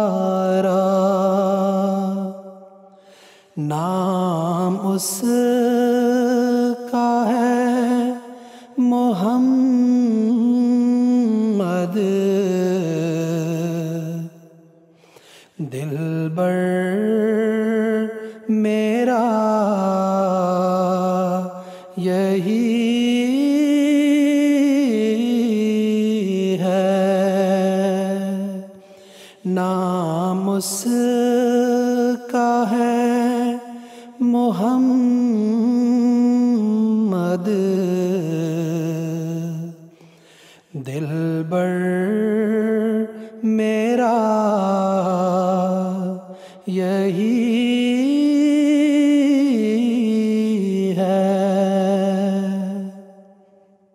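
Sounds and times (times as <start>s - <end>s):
man singing unaccompanied: 0.0s - 2.8s, 3.5s - 14.4s, 15.6s - 40.0s, 40.7s - 53.1s
quick breath: 2.9s - 3.6s, 8.3s - 8.8s, 14.9s - 15.6s, 21.6s - 22.0s, 28.8s - 29.5s, 33.8s - 34.2s, 39.9s - 40.8s, 46.3s - 46.7s.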